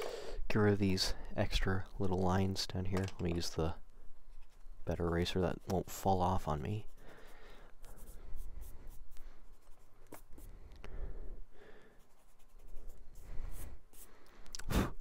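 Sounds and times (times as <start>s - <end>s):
eraser rubbing on paper: 6.8s - 10.6s, 12.0s - 14.2s.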